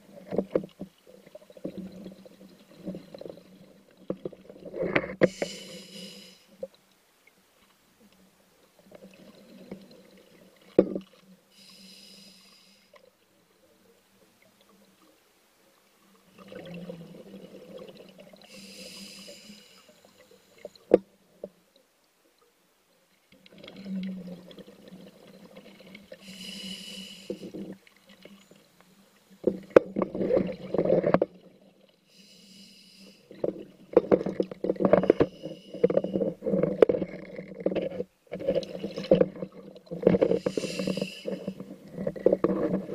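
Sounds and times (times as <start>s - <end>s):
regulator hissing inhalations: 5.2s - 6.6s, 11.5s - 13.0s, 18.5s - 20.6s, 26.2s - 27.6s, 32.1s - 33.4s, 35.0s - 36.3s, 40.3s - 41.6s
exhaled bubbles: 16.3s - 19.0s.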